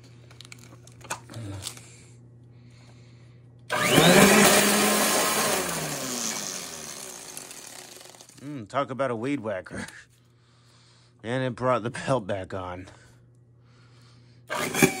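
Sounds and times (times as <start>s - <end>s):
vacuum cleaner motor whirring: 3.7s - 8.4s, 14.5s - 15.0s.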